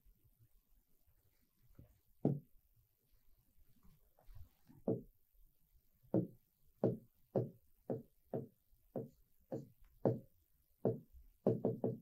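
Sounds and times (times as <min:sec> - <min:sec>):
light taps on writing board: 0:06.1 - 0:10.2.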